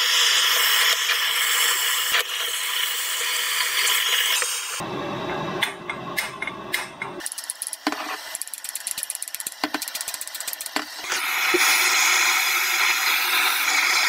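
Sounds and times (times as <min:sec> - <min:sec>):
blowtorch hissing: 0:00.0 - 0:04.9, 0:09.4 - 0:14.0.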